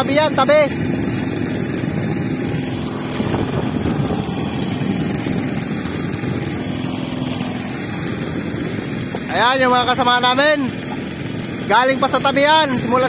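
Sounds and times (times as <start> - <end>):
boat engine drone: 0.0 - 13.0
wind on microphone: 0.8 - 9.3.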